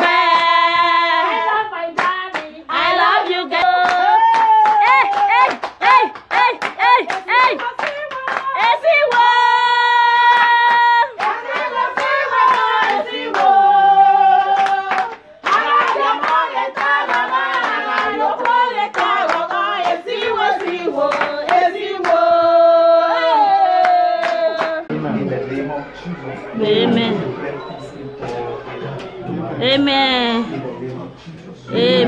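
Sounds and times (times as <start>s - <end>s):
people singing together: 0.0s - 29.9s, 31.2s - 32.0s
hands clapping: 3.6s - 9.3s, 10.3s - 13.5s, 14.4s - 22.2s, 23.8s - 24.8s.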